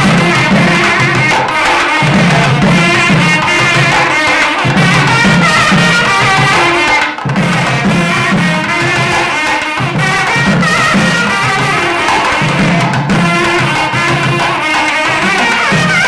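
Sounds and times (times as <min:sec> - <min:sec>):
wavering melody: 0:00.0 - 0:06.9
steady drum pattern: 0:00.0 - 0:16.0.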